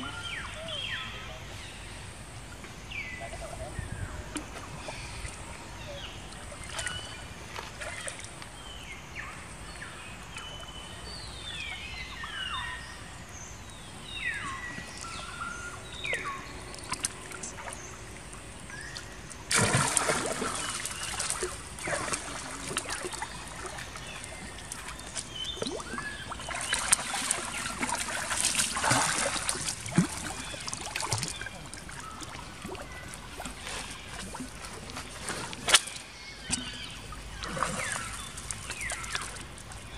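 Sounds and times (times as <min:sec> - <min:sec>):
loud splashing in water: 0:19.5 - 0:24.0, 0:25.6 - 0:31.5.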